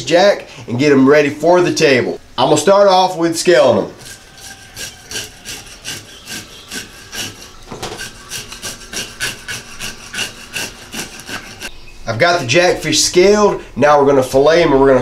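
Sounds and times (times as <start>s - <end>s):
fish scaler scraping scales: 4.0s - 11.7s.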